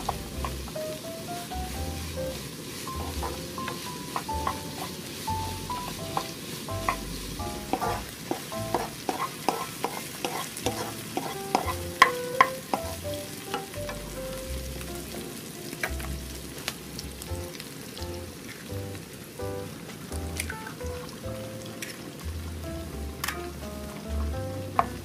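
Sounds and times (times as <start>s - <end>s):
vegetables sizzling in oil: 0.0s - 25.0s
spatula scraping pan: 2.9s - 13.0s.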